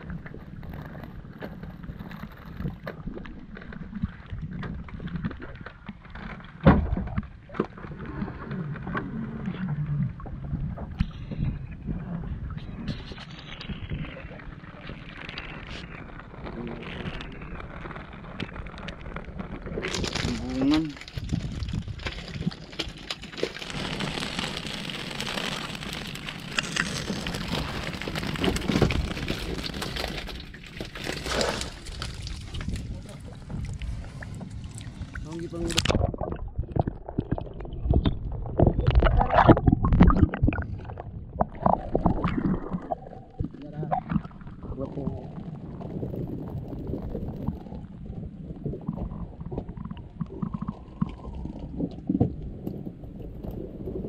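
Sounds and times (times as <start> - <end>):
water pattering and splashing: 10.2 - 54.0
clicks and knocks of gear: 18.4 - 24.1
fish traps knocking and rattling: 19.7 - 33.7.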